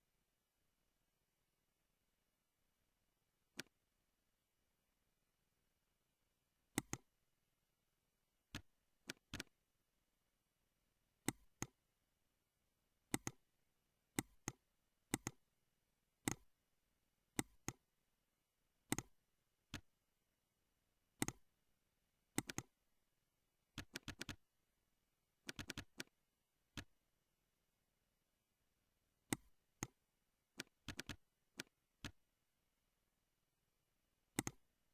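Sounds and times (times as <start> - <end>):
computer mouse clicking: 3.5 - 3.8, 6.7 - 7.1, 8.5 - 9.6, 11.2 - 11.8, 13.1 - 13.4, 14.1 - 15.4, 16.2 - 16.5, 17.3 - 17.8, 18.9 - 19.9, 21.2 - 21.5, 22.3 - 22.8, 23.7 - 24.4, 25.4 - 27.0, 29.3 - 32.2, 34.3 - 34.7
keyboard keystrokes: 8.5 - 9.5, 23.8 - 24.4, 25.5 - 26.1, 30.6 - 32.2, 34.4 - 34.6.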